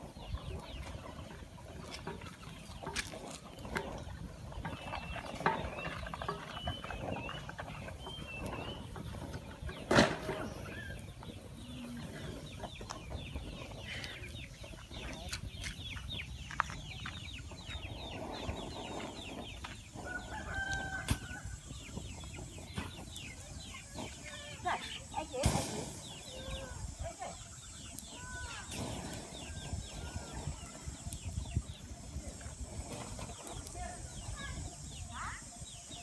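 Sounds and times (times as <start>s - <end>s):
birds chirping: 0.0s - 36.0s
wood fire crackling: 0.0s - 36.0s
sharp pop of fire: 25.4s - 26.2s.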